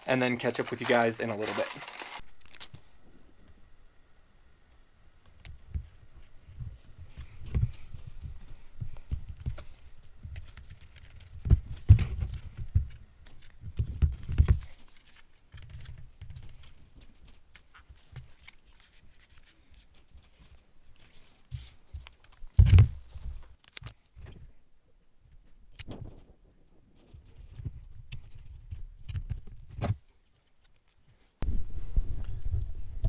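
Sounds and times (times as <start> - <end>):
handling rustling: 0.0 - 3.0, 5.4 - 24.6.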